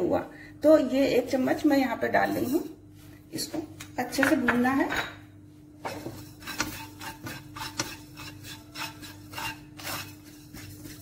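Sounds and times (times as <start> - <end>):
spatula scraping seeds in pan: 5.8 - 11.0.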